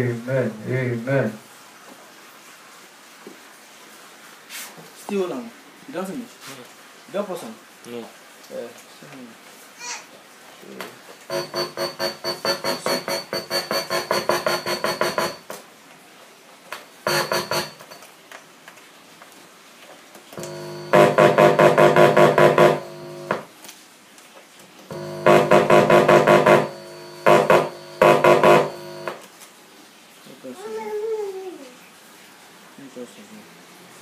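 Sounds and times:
electronic keyboard playing chords: 20.4 - 23.4, 24.9 - 29.1.

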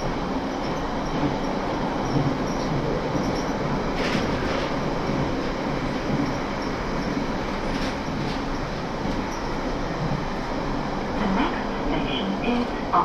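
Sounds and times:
rumble of train wheels on rail: 0.0 - 13.0.

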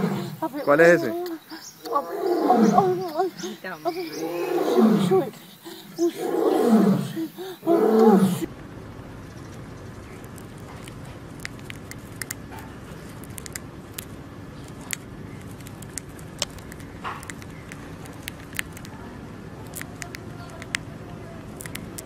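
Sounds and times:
steady low background noise: 0.0 - 22.0
hamster nibbling food: 10.0 - 22.0.

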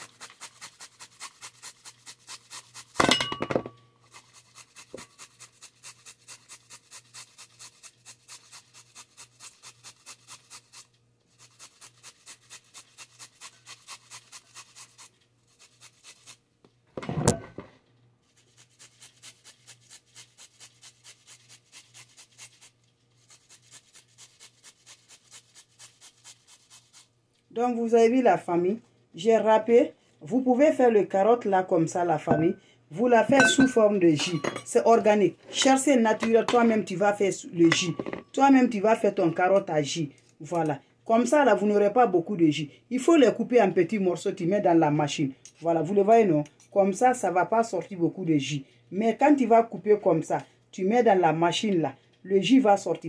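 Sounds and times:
carrot grated on metal grater: 0.0 - 3.0, 4.1 - 16.4, 18.4 - 27.0.

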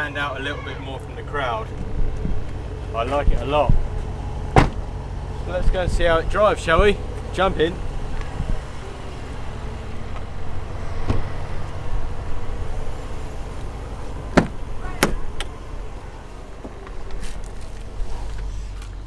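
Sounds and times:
low rumble: 1.0 - 19.0
car door and cabin clicks: 4.5 - 4.8, 14.3 - 15.5.

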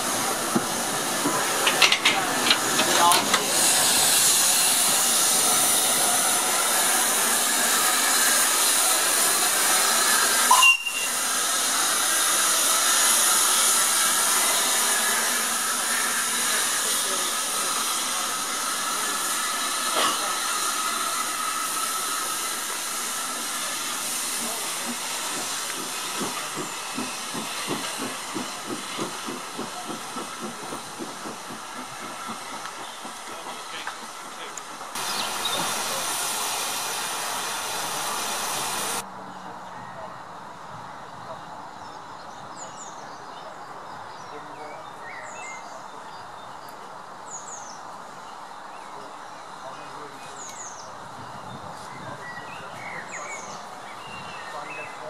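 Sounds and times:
steam engine exhaust beats: 0.0 - 39.0
steam engine hissing: 0.0 - 39.0
steam whistle: 10.4 - 11.3.

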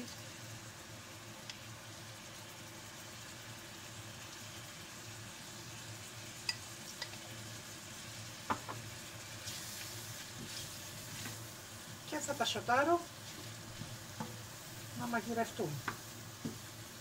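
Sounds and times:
mushrooms sizzling in a frying pan: 0.0 - 17.0
spatula scraping a pan: 9.4 - 11.4.

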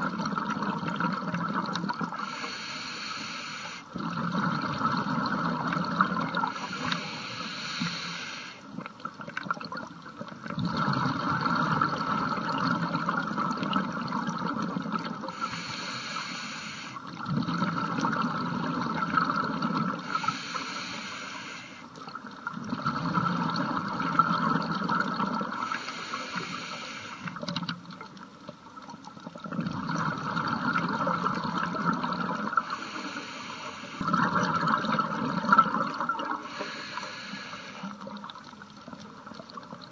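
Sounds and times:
regulator inhale hiss: 2.2 - 4.0, 6.5 - 8.7, 15.3 - 17.0, 20.0 - 21.9, 25.5 - 27.4, 32.6 - 34.1, 36.4 - 38.0
exhaust bubbles bubbling: 17.2 - 20.1, 34.0 - 36.5.

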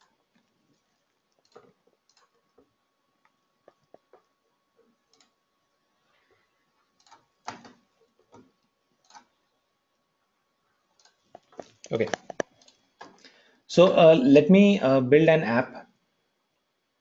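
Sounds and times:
faint clicks and ticks: 0.0 - 10.1, 10.7 - 13.6.

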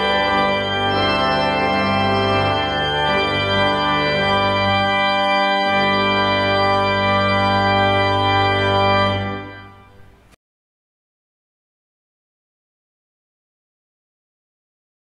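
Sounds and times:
organ playing chords: 0.0 - 10.4.

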